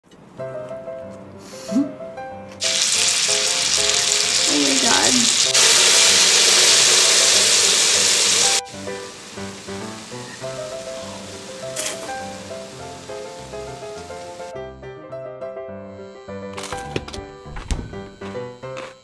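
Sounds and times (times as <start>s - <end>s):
background music: 0.1s - 19.0s
steak sizzling on griddle: 2.6s - 14.5s.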